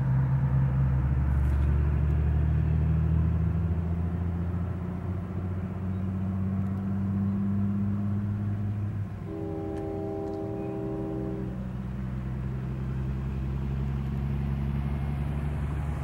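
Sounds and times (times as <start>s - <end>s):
low engine drone: 0.0s - 16.0s
locomotive air horn chord: 9.2s - 11.8s.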